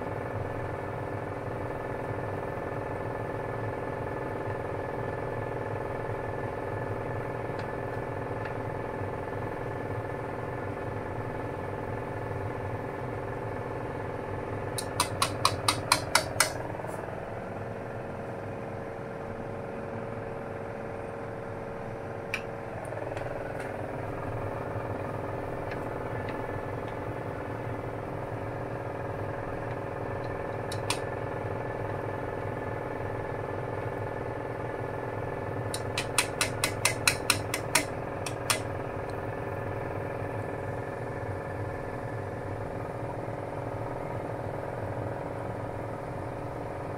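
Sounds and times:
cooker humming: 0.0s - 46.9s
noodles boiling: 14.5s - 17.2s, 22.1s - 33.0s, 34.6s - 40.5s
chopsticks tapping against wok: 14.8s - 16.6s, 35.7s - 38.7s.

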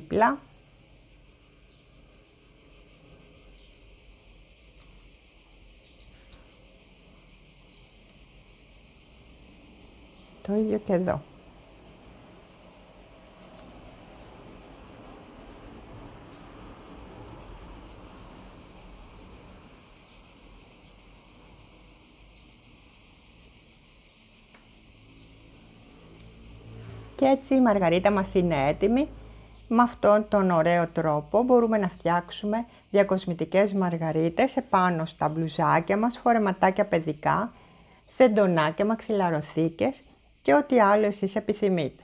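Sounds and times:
faint high-pitched hiss: 0.0s - 42.0s
faint ticks: 4.7s - 5.0s, 5.9s - 6.6s.

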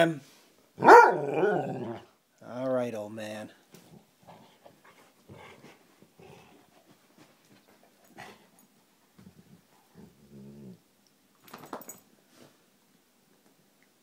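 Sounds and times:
dog growling: 1.1s - 2.1s, 9.9s - 10.8s.

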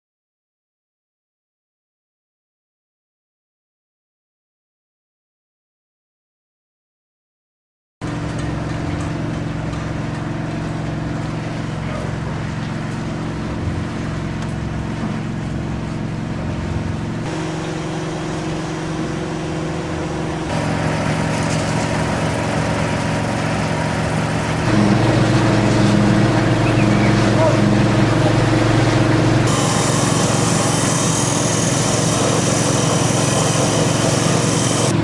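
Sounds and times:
small engine humming: 17.3s - 35.0s.

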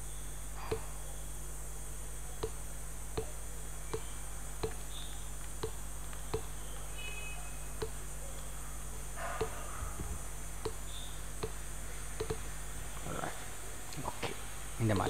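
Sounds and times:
low hum and hiss: 0.0s - 15.0s
computer mouse clicking: 12.2s - 12.4s.

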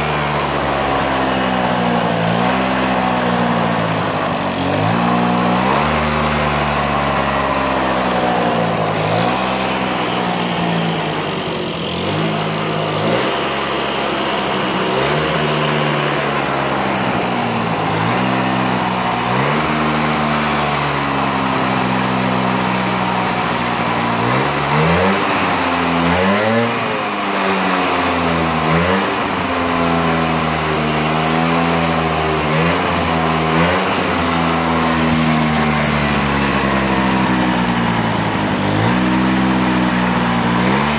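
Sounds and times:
scooter engine revving: 0.0s - 40.9s.

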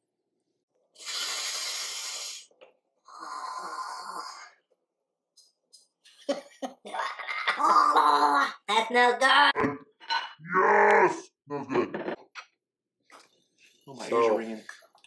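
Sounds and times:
man sniffing through nose: 1.0s - 2.5s.

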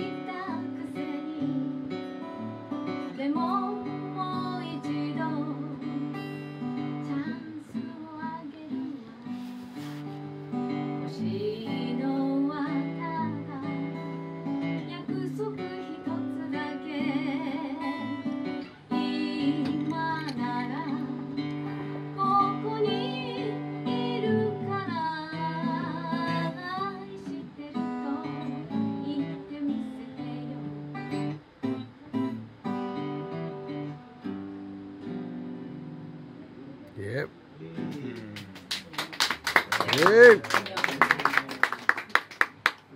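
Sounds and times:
woman singing with vibrato: 0.0s - 2.0s, 3.0s - 6.0s, 11.1s - 14.0s, 14.8s - 30.8s
strummed acoustic guitar: 0.0s - 38.7s.

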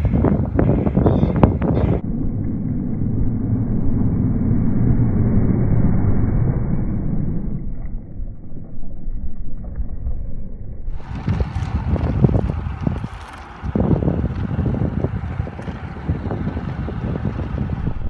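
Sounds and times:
bicycle tyre rumble on tarmac: 0.0s - 2.6s, 7.8s - 18.0s
wind buffeting microphone: 0.0s - 4.1s, 10.9s - 18.0s.

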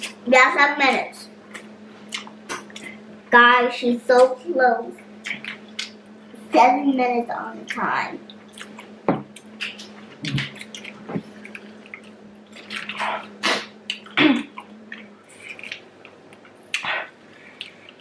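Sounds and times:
wet chewing and smacking: 1.5s - 3.0s, 7.7s - 16.9s.

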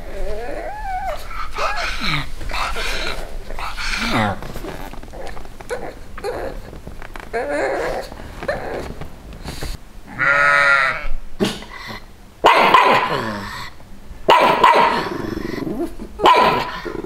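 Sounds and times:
sheep bleating: 10.1s - 11.1s
dog barking: 12.4s - 13.3s, 14.3s - 15.1s, 16.2s - 16.8s.

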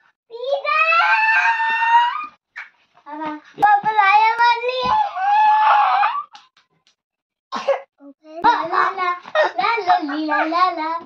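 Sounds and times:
girl squealing excitedly: 0.7s - 2.4s, 4.8s - 6.4s.

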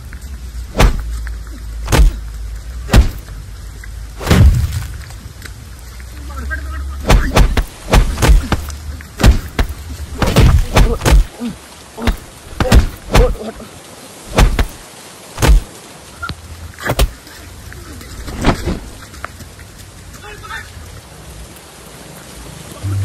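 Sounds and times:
blows and kicks thudding: 0.7s - 1.1s, 1.8s - 2.2s, 2.8s - 3.3s, 4.2s - 5.1s, 7.0s - 11.3s, 12.0s - 13.4s, 14.3s - 14.8s, 15.4s - 15.7s, 16.8s - 17.2s.

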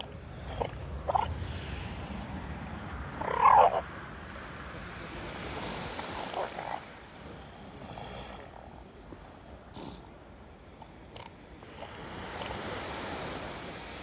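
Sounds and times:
elephant seal calling: 0.0s - 1.4s, 3.2s - 3.8s.

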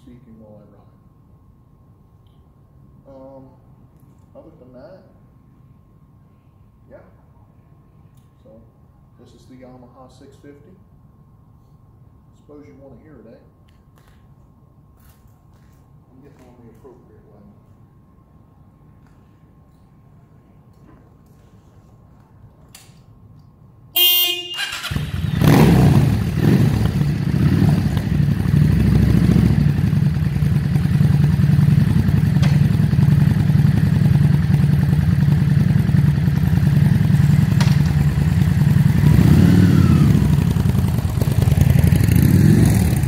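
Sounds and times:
horn beep: 24.0s - 25.0s
motorcycle engine revving and idling: 24.7s - 43.0s.

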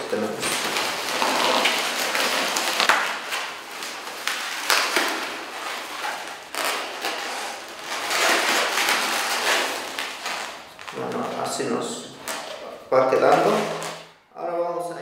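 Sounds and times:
balloons rubbing together: 0.0s - 14.1s.

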